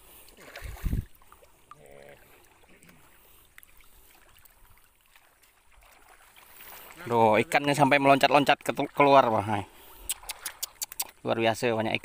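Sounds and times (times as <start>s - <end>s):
faint ticks: 10.0s - 11.2s.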